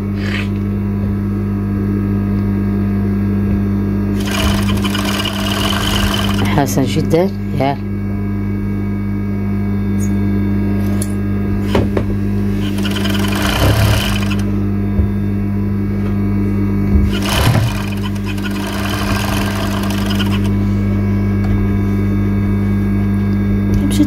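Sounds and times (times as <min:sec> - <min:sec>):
sewing machine stitching fabric: 0:04.2 - 0:06.6, 0:12.6 - 0:14.5, 0:17.1 - 0:20.6
sewing machine motor humming: 0:04.2 - 0:06.9, 0:11.6 - 0:14.6, 0:17.0 - 0:20.7.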